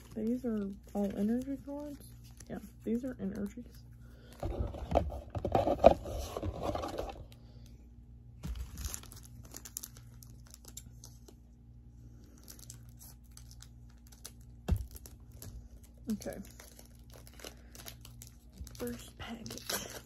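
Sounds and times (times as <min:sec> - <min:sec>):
foil wrapper crinkling and tearing: 0:00.0 - 0:03.7, 0:08.4 - 0:11.4, 0:12.2 - 0:20.0.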